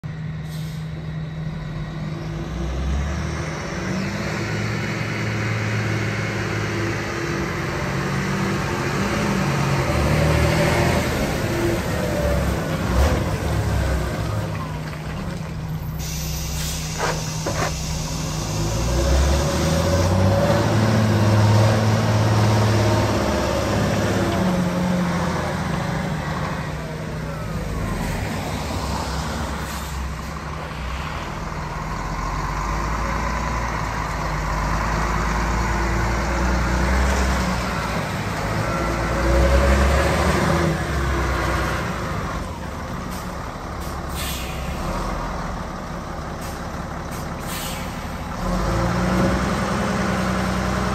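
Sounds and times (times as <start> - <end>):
diesel truck engine: 0.0 - 50.9
air brake hisses: 0.4 - 0.9, 15.9 - 18.7, 29.6 - 30.2, 43.1 - 44.9, 46.4 - 48.2.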